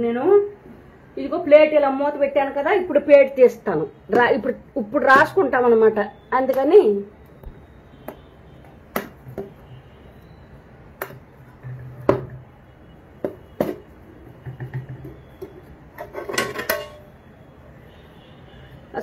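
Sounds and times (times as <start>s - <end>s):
metal lid clinking and scraping: 15.9s - 17.1s.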